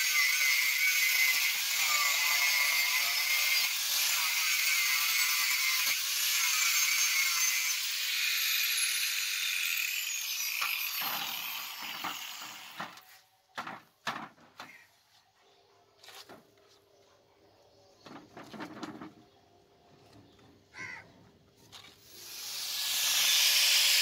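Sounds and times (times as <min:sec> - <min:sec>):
angle grinder grinding steel: 0:00.0 - 0:13.1, 0:21.8 - 0:24.0.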